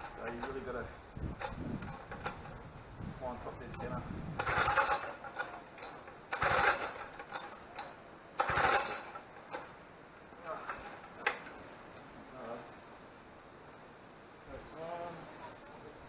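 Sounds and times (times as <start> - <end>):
engine pull-start whirring: 3.7 - 9.7, 10.4 - 11.4.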